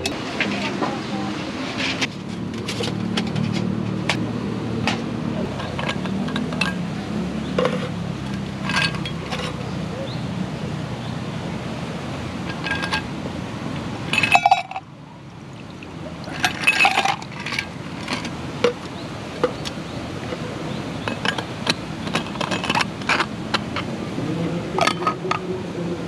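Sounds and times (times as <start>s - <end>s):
metal mug and flask clinking: 5.5s - 6.8s, 7.6s - 9.6s, 12.4s - 13.1s, 14.1s - 14.9s, 16.2s - 19.7s, 21.0s - 23.7s, 24.8s - 25.4s
drink pouring: 15.5s - 17.7s.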